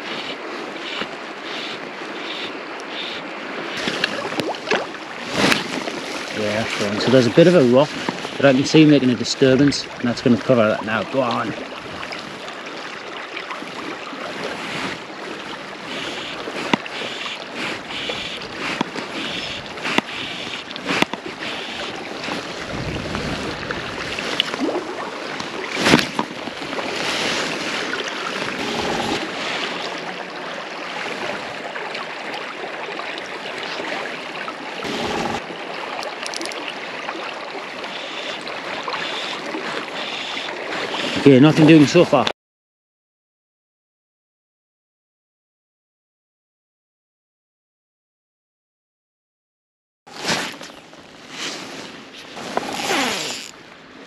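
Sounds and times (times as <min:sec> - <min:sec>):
river water rushing: 0:00.0 - 0:42.1.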